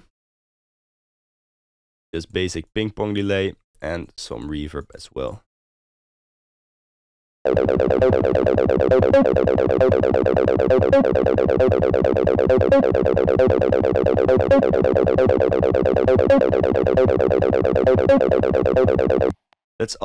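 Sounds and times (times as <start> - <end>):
synth acid bass line: 7.5 - 19.3.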